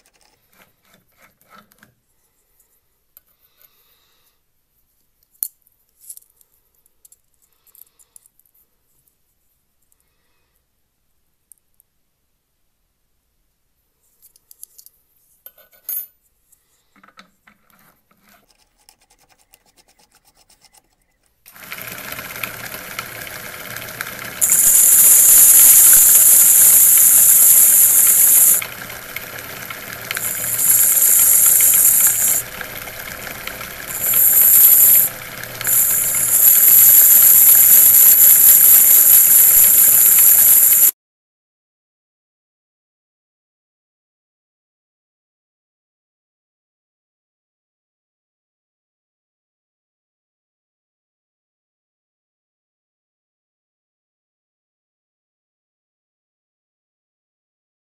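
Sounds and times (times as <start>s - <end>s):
spindle motor humming: 21.5s - 40.9s
high-pitched metal screech: 24.4s - 28.7s, 30.2s - 32.5s, 33.9s - 40.9s.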